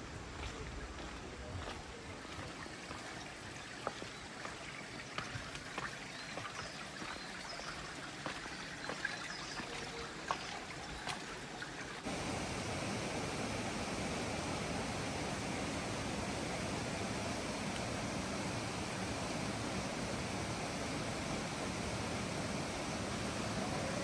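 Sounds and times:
stream running water: 0.0s - 24.0s
footsteps on stone path: 0.3s - 11.2s.

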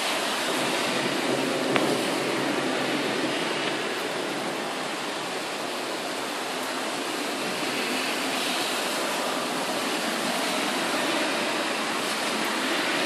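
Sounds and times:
heavy rain hissing: 0.0s - 13.0s.

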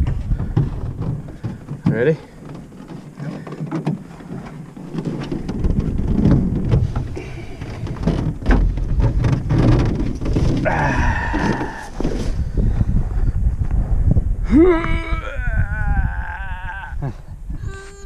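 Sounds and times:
knocks and thumps: 0.0s - 12.9s
canoe handling rumble: 0.0s - 18.0s.

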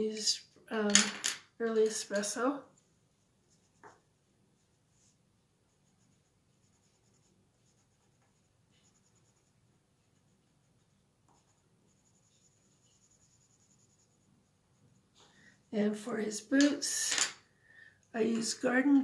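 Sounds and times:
pencil scratching on card: 3.5s - 15.3s.

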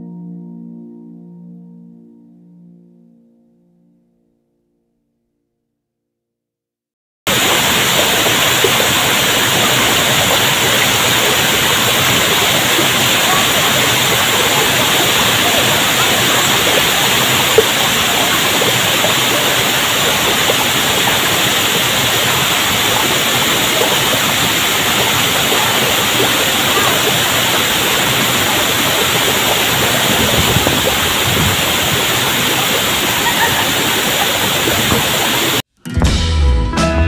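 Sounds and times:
waterfall rushing: 7.3s - 35.6s.

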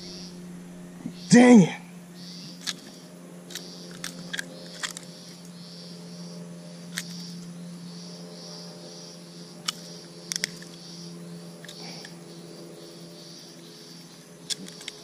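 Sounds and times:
pulsing high buzz: 0.0s - 15.0s
steady low hum: 0.0s - 15.0s
pliers clicking and snapping: 2.6s - 5.1s, 9.6s - 10.8s, 14.5s - 15.0s.

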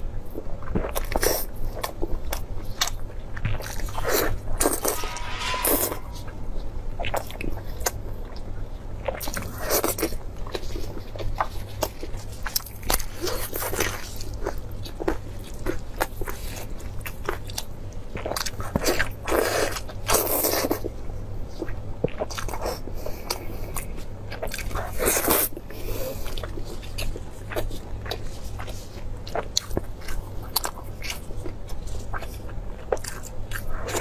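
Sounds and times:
steady low hum: 3.4s - 7.4s.

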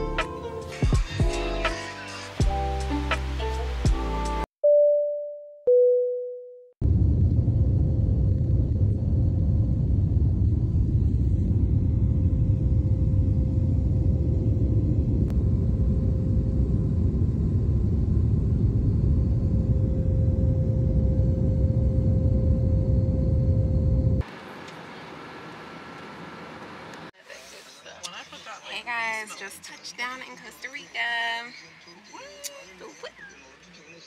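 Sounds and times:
airliner cabin rumble: 6.8s - 25.3s
steady hum: 6.8s - 25.6s.

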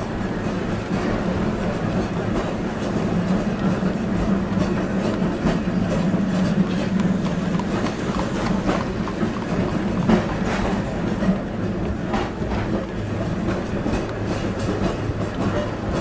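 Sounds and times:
tram rumbling on rails: 0.0s - 16.0s
tram wheel clacks: 0.0s - 16.0s
horse hooves clip-clopping: 0.4s - 16.0s.

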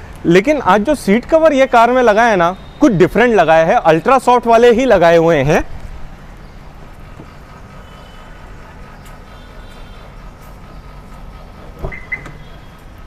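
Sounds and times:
steady low rumble: 4.4s - 13.0s.

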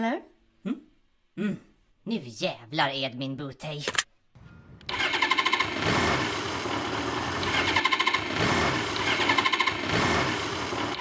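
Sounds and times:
starter motor cranking engine: 4.8s - 11.0s.

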